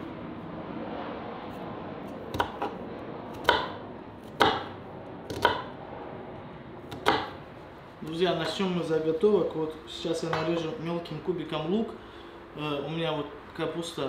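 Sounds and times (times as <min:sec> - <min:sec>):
sharp chopping strikes: 0:02.3 - 0:05.7, 0:06.9 - 0:07.4.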